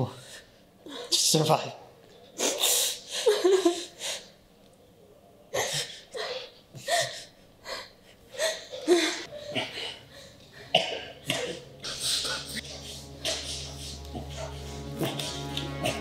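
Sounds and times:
woman sobbing: 0:03.0 - 0:04.3, 0:05.6 - 0:10.7.

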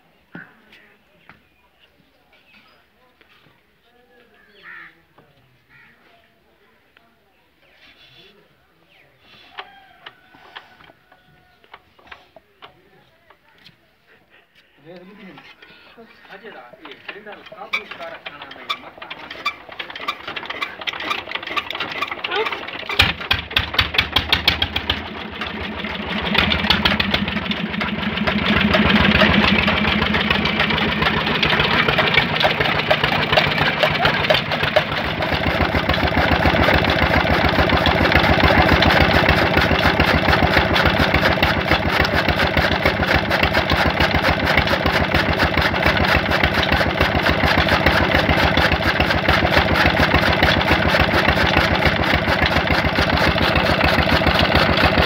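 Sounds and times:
chaff cutter chopping fodder: 0:16.8 - 0:55.0
small diesel engine running: 0:16.8 - 0:55.0.

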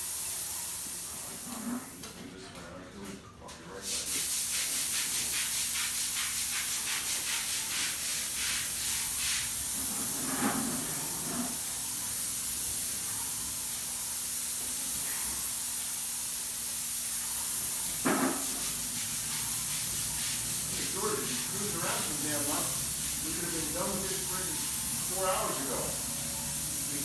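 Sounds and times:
paint spray gun hissing: 0:11.5 - 0:27.0.

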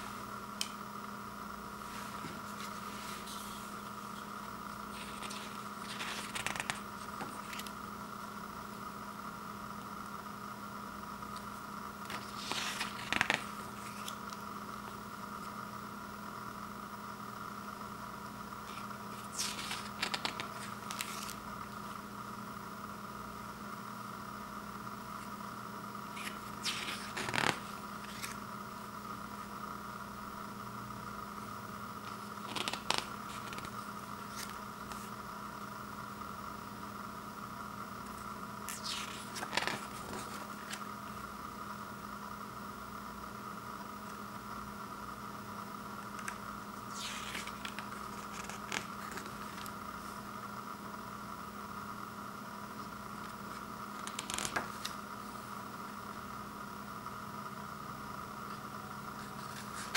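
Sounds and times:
steady background hum: 0:00.0 - 0:59.9
paper pages turning: 0:01.8 - 0:04.3, 0:04.9 - 0:07.8, 0:12.0 - 0:14.4, 0:18.6 - 0:21.5, 0:26.1 - 0:28.4, 0:32.0 - 0:35.2, 0:38.1 - 0:40.9, 0:46.1 - 0:50.1, 0:53.5 - 0:55.0, 0:59.2 - 0:59.9.

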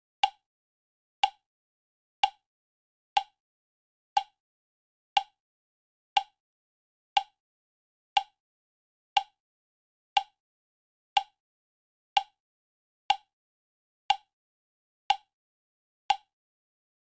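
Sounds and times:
timer ticking clicks: 0:00.2 - 0:00.4, 0:01.2 - 0:01.4, 0:02.2 - 0:02.4, 0:03.2 - 0:03.4, 0:04.2 - 0:04.4, 0:05.2 - 0:05.4, 0:06.2 - 0:06.4, 0:07.2 - 0:07.4, 0:08.2 - 0:08.4, 0:09.2 - 0:09.4, 0:10.2 - 0:10.4, 0:11.1 - 0:11.4, 0:12.1 - 0:12.4, 0:13.1 - 0:13.3, 0:14.1 - 0:14.3, 0:15.1 - 0:15.3, 0:16.1 - 0:16.3.

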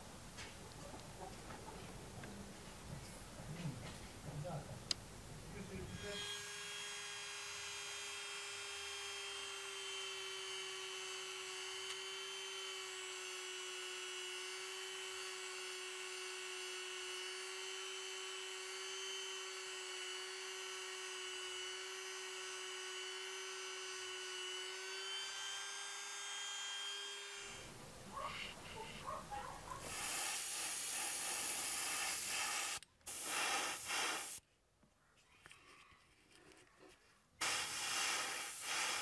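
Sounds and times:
rotary tool whining: 0:05.9 - 0:27.7.

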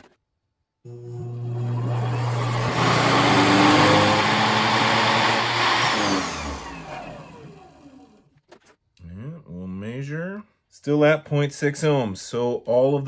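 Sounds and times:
treadmill motor whirring: 0:00.9 - 0:08.2.

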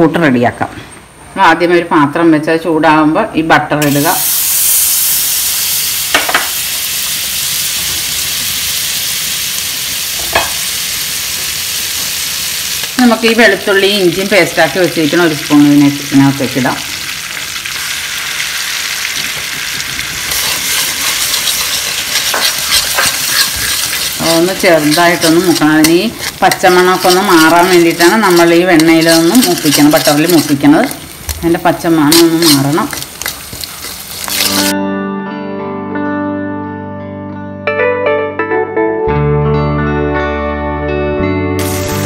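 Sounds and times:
butter sizzling in a pan: 0:03.8 - 0:34.7, 0:41.6 - 0:42.0
metal spoon stirring: 0:20.2 - 0:34.7.

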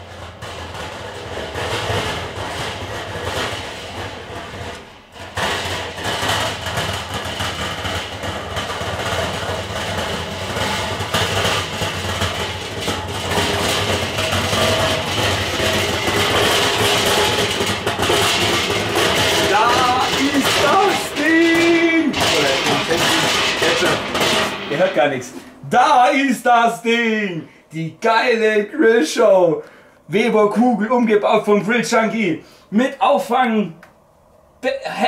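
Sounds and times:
metal grill rattling on paving: 0:00.0 - 0:25.5.

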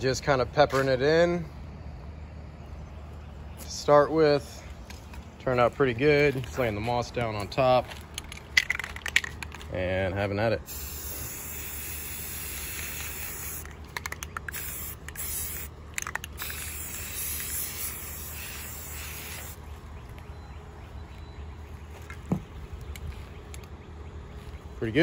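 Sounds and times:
spray paint can hissing: 0:10.7 - 0:19.6
quick clicks: 0:13.6 - 0:15.2.

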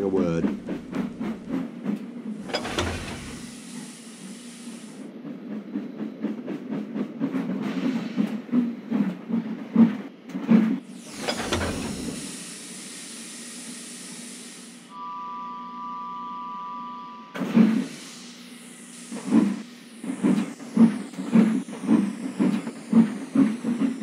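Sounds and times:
steam locomotive chuffing: 0:00.0 - 0:09.8, 0:10.8 - 0:14.9, 0:17.4 - 0:24.0
steam hissing: 0:02.4 - 0:05.0, 0:10.8 - 0:14.9, 0:17.7 - 0:24.0
faint two-note tone: 0:14.9 - 0:17.4.

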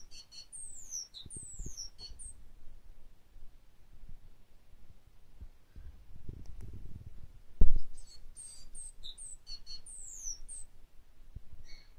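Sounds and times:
bird chirping: 0:00.0 - 0:02.4, 0:07.8 - 0:10.7, 0:11.6 - 0:11.9.

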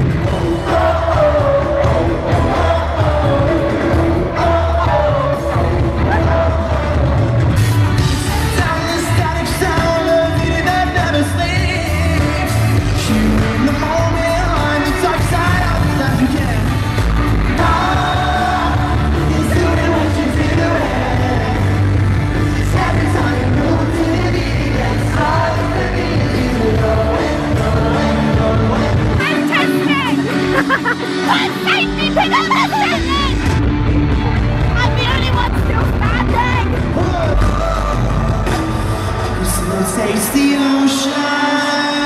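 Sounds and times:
fans singing and shouting: 0:00.0 - 0:42.0
live pop-rock band: 0:00.0 - 0:42.0.

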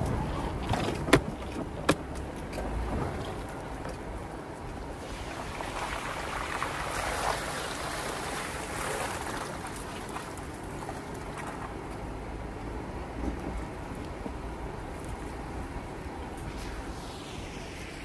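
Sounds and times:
low engine rumble: 0:00.0 - 0:18.0
steady rushing noise: 0:14.5 - 0:18.0.

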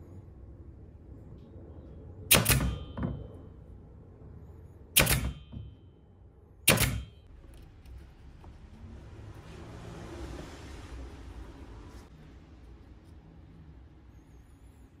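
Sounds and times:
nailer firing into wood: 0:02.3 - 0:03.2, 0:05.0 - 0:05.7, 0:06.7 - 0:07.2.

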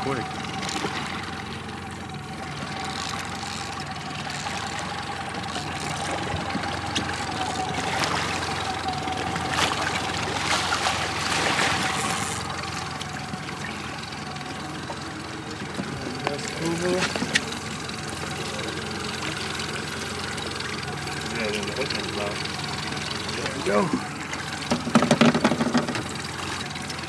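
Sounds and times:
constant whine: 0:00.0 - 0:27.0
outboard motor running: 0:00.0 - 0:27.0
fish splashing at surface: 0:05.6 - 0:14.0.

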